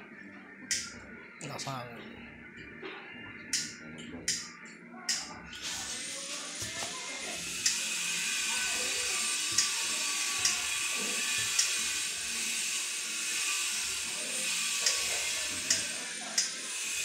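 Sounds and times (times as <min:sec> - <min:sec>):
spark igniter clicking: 0:00.7 - 0:00.9
steady gas hiss: 0:05.5 - 0:08.5.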